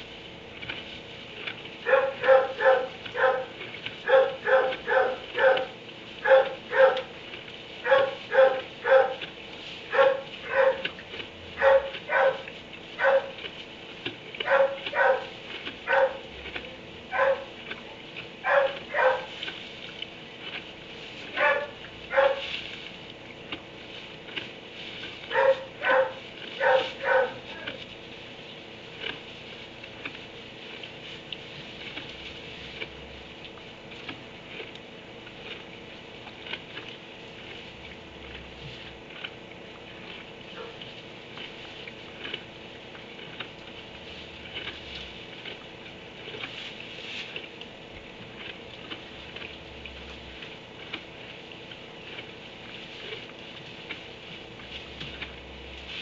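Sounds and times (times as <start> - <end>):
dog barking: 1.8 - 7.1, 7.8 - 9.2, 9.9 - 10.9, 11.6 - 13.5, 14.4 - 16.3, 17.1 - 17.6, 18.4 - 19.4, 21.4 - 22.5, 25.3 - 27.8, 40.6 - 40.8.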